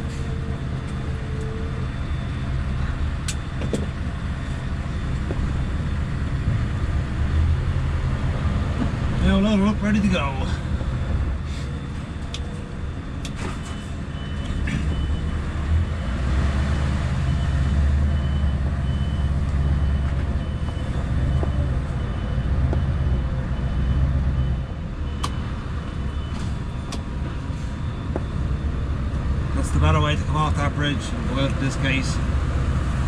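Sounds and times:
diesel truck engine rumble: 0:00.0 - 0:33.0
high warning beeps: 0:09.2 - 0:16.2, 0:17.2 - 0:32.2.

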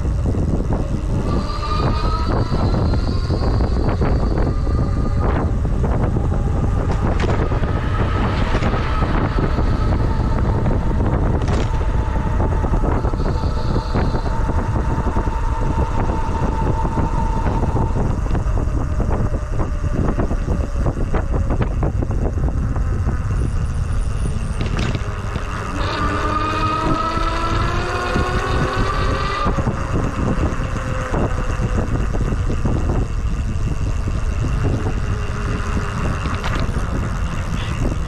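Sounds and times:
steady whine: 0:00.0 - 0:38.0
wind buffeting microphone: 0:00.0 - 0:38.0
small rattling clicks: 0:23.9 - 0:38.0.

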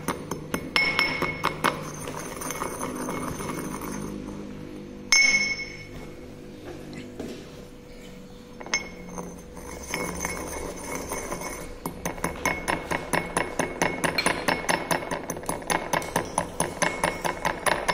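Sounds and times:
pestle clinking in mortar: 0:00.0 - 0:04.2, 0:08.6 - 0:17.9.

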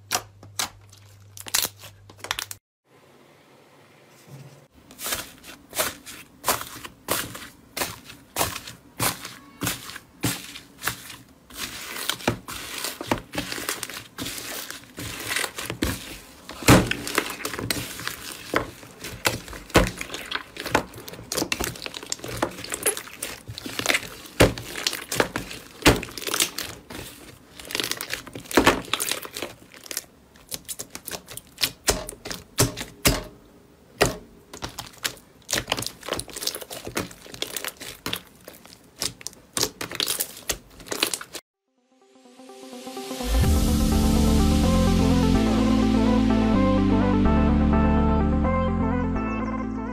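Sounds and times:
slime crackling and popping: 0:06.5 - 0:32.9, 0:34.5 - 0:41.4.

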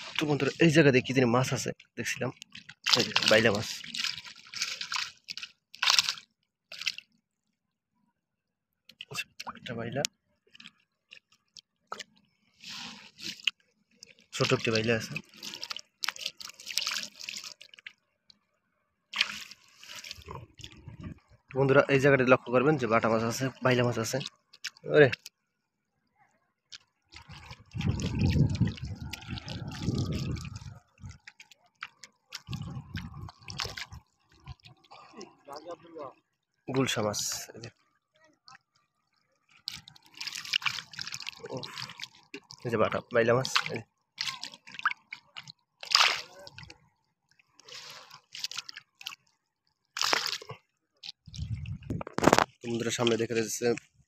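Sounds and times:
river water splashing: 0:00.0 - 0:00.7, 0:02.5 - 0:07.1, 0:12.6 - 0:18.0, 0:19.1 - 0:20.8, 0:27.1 - 0:35.4, 0:39.0 - 0:46.8, 0:47.4 - 0:53.8.

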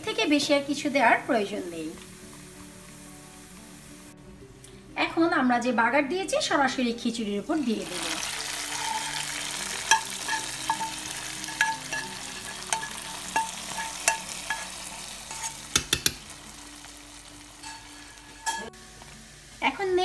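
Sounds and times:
hot oil sizzling: 0:00.0 - 0:04.2, 0:06.9 - 0:20.0
spoon scraping metal pans: 0:08.0 - 0:16.4, 0:17.6 - 0:18.8.

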